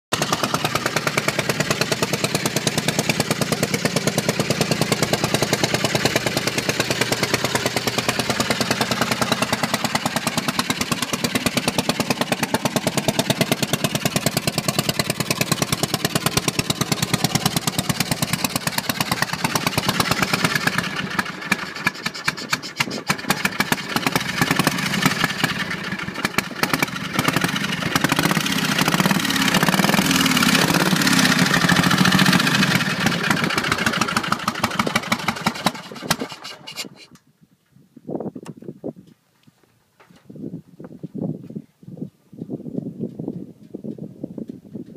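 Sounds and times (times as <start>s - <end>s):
motorcycle engine idling: 0.1s - 36.1s.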